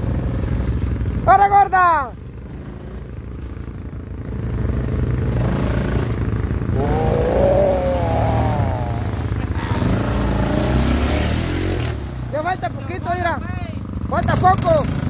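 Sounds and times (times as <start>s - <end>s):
quad engine running: 2.4s - 15.0s
person shouting: 6.8s - 10.8s.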